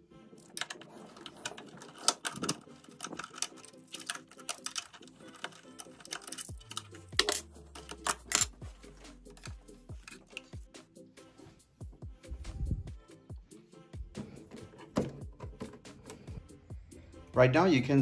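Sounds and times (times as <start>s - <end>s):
screwdriver clicking on metal: 0.4s - 10.6s.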